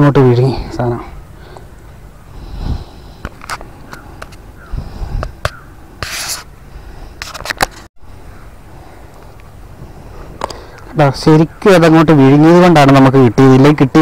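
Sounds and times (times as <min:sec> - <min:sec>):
handling clicks and scrapes: 0:03.2 - 0:04.4, 0:05.2 - 0:06.5, 0:07.1 - 0:07.9.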